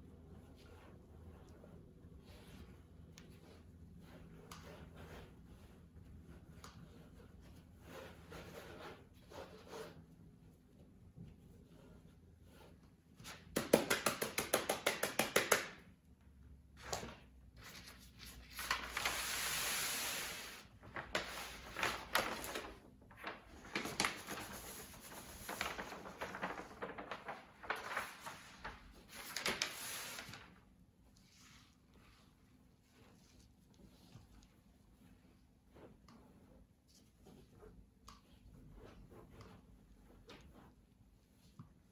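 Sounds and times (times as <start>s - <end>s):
scratchy rubbing on a screen: 0.4s - 13.4s, 31.1s - 41.8s.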